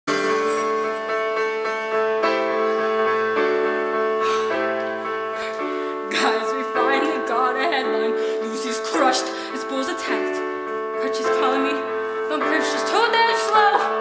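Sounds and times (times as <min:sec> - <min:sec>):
slow piano chords: 0:00.1 - 0:14.0
person singing: 0:06.0 - 0:14.0.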